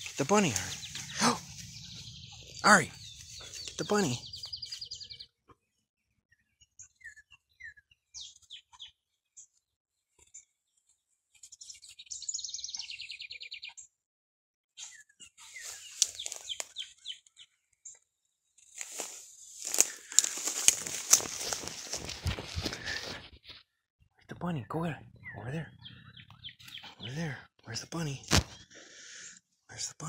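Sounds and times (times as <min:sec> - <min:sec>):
grass and brush rustling: 0:00.0 - 0:05.0, 0:15.4 - 0:16.9, 0:18.6 - 0:23.6
songbird trilling: 0:00.0 - 0:05.2, 0:15.5 - 0:17.2, 0:24.6 - 0:27.3
bird chirps: 0:00.0 - 0:05.4, 0:06.3 - 0:09.0, 0:11.4 - 0:13.9, 0:14.8 - 0:18.0, 0:24.3 - 0:29.3.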